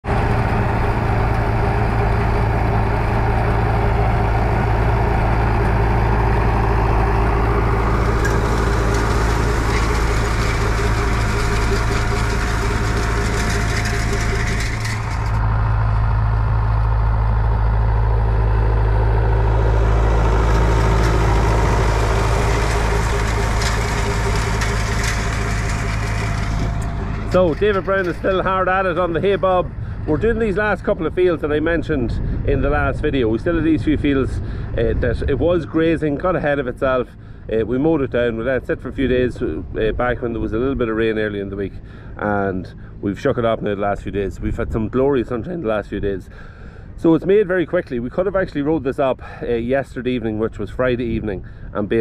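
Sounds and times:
tractor engine running: 0.0 - 52.0
clicks and rattles: 7.5 - 15.6, 20.4 - 29.4.

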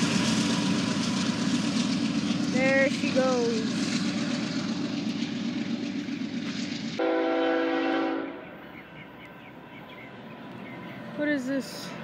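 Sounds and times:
locomotive air horn: 7.0 - 8.4.

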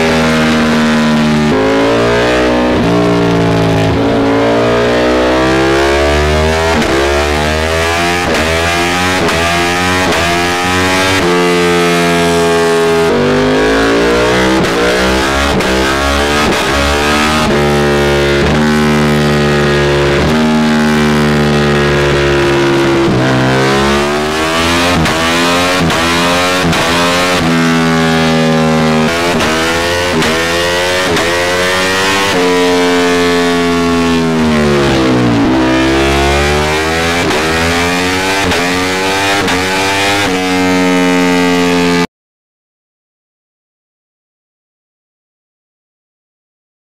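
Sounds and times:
motorcycle engine revving: 0.0 - 42.1.

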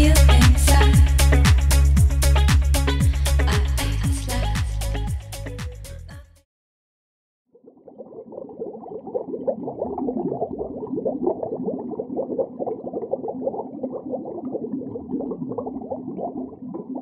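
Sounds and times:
water bubbling and gurgling: 7.5 - 17.0.

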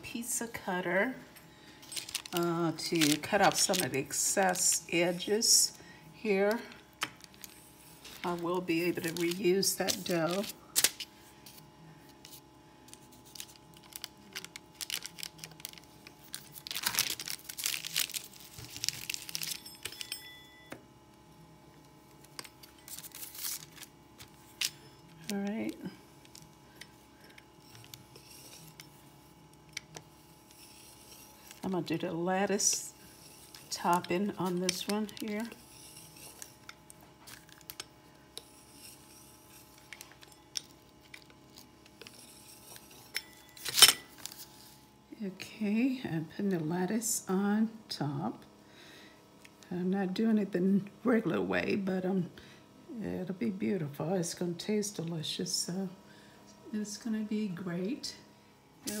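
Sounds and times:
dough crinkling and rustling: 1.9 - 5.6, 6.4 - 20.2, 21.8 - 44.8
pizza cutter rolling through dough: 27.2 - 44.7.

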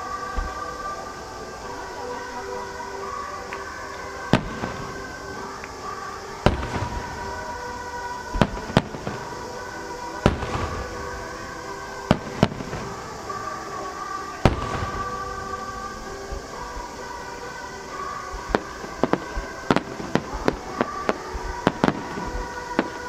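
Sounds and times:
firework shells booming: 6.4 - 7.4.

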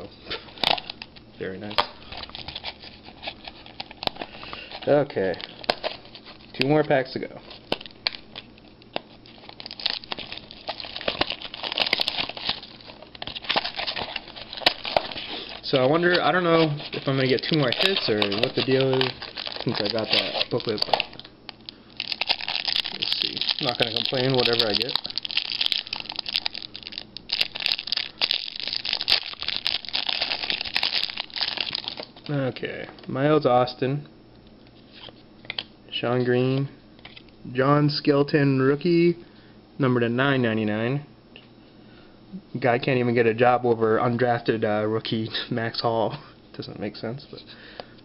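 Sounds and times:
plastic wrapping crinkling: 7.4 - 32.4.

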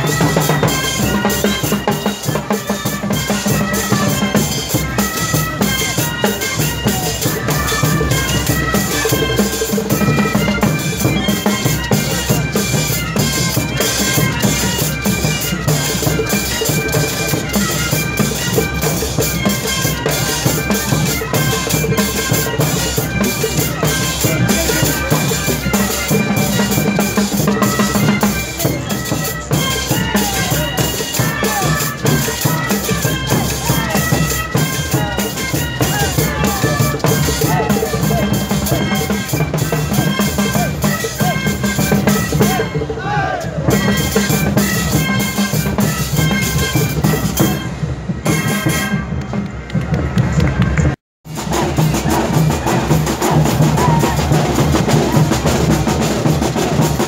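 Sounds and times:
drums and cymbals beat: 0.0 - 57.0
wind instruments melody: 0.0 - 57.0.

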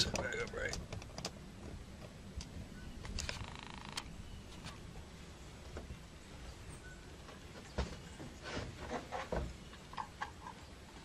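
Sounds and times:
light taps and ticks: 0.0 - 1.4.

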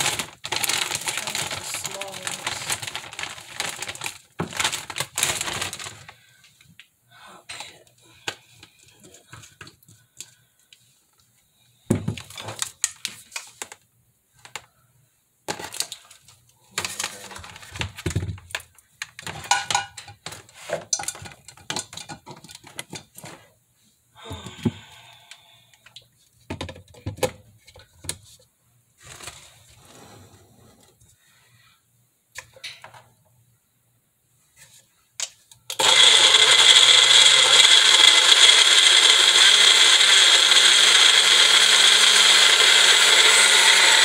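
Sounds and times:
kitchen items clattering and knocking: 16.7 - 23.4.

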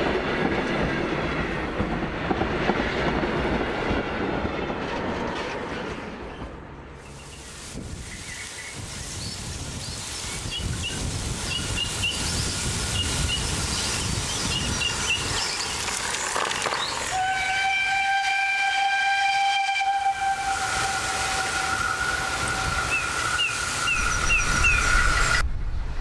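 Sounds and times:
steam locomotive rumble: 0.0 - 26.0
steam whistle blast: 17.1 - 25.4.

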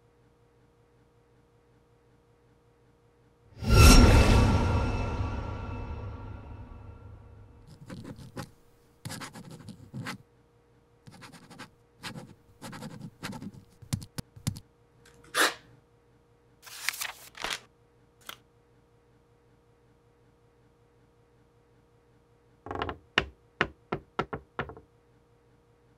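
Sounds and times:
pen scratching on paper: 7.7 - 10.2, 11.1 - 14.6.

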